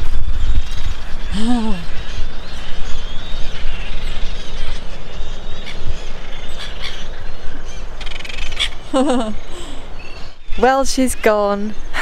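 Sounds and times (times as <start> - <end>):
birds chirping: 0.0 - 12.0
wind rumbling on microphone: 0.0 - 12.0.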